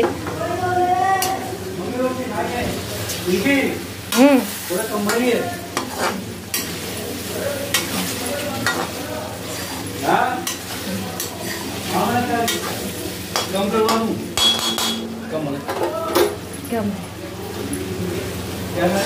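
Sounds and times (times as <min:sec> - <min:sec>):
vegetables sizzling in hot oil: 0:01.2 - 0:14.5
metal spatula scraping a pan: 0:05.0 - 0:06.9, 0:07.6 - 0:15.0.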